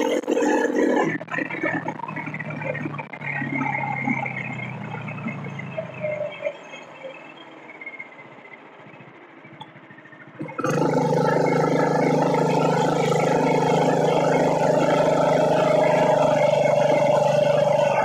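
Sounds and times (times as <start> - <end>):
small motorbike engine droning: 0.0 - 6.5, 10.4 - 18.0.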